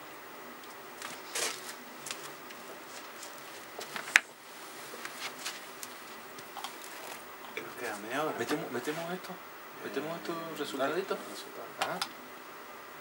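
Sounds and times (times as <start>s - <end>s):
handling rustles: 1.0s - 9.1s.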